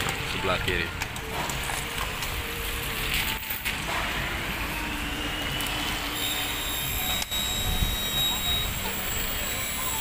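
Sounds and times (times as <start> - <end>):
traffic on a wet road: 0.0 - 10.0
thin high whine: 4.7 - 10.0.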